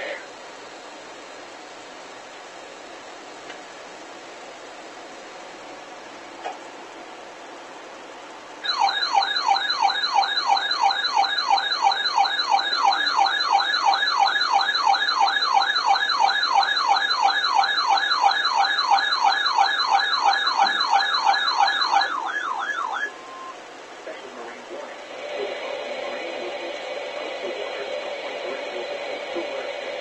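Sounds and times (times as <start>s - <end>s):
electronic alert siren whooping: 8.6s - 23.5s.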